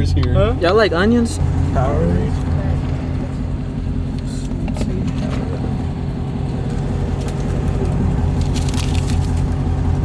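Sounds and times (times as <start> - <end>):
car engine idling: 0.0 - 10.0
paper and plastic crinkling: 7.2 - 9.6.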